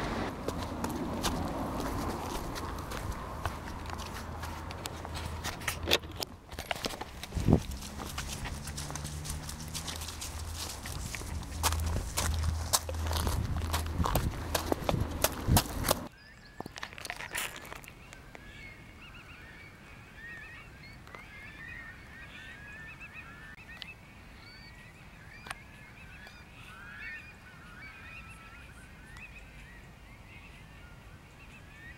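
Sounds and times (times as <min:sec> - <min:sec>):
distant geese honking: 0:07.7 - 0:16.1.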